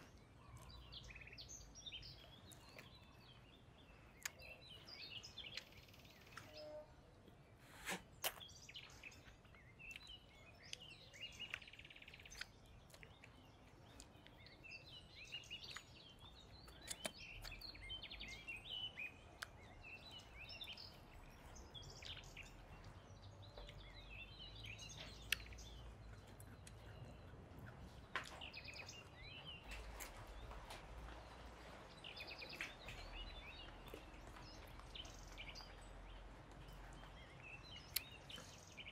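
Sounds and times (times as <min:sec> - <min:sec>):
faint bird chirps: 0:00.0 - 0:38.9.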